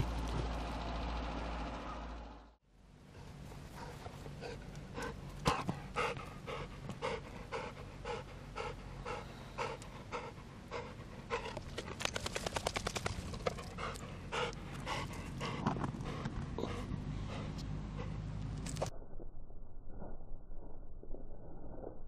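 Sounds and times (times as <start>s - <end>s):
dog panting hard: 3.7s - 12.0s, 13.1s - 18.3s.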